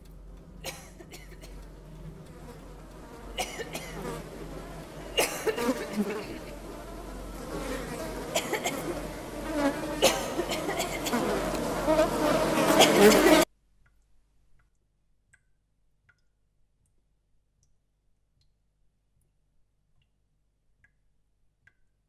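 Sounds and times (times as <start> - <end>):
buzzing: 0.0 - 13.5.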